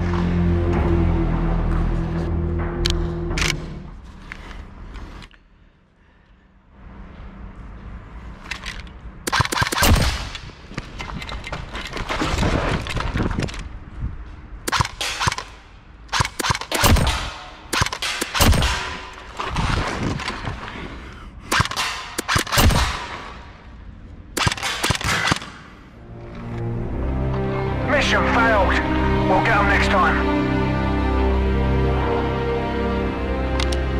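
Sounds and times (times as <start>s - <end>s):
automatic gunfire: 21.5s - 23.1s.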